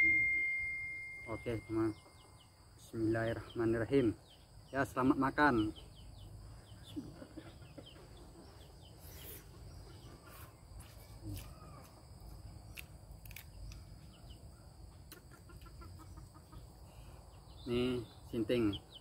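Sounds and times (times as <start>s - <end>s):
chickens clucking faintly: 6.5s - 12.8s, 13.8s - 18.8s.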